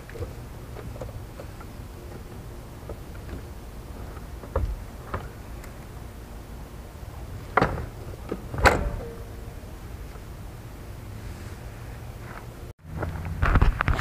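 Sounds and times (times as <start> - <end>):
parts knocking and clunking: 0.0 - 6.2, 7.1 - 10.3
low rumble of wind: 0.0 - 14.0.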